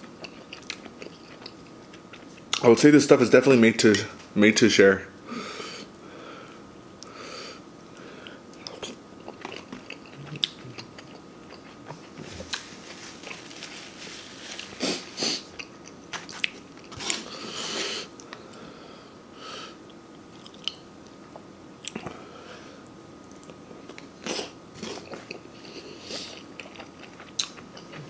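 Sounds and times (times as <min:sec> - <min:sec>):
person chewing with wet mouth sounds: 0:00.0 - 0:02.6, 0:08.2 - 0:13.5, 0:23.2 - 0:28.0.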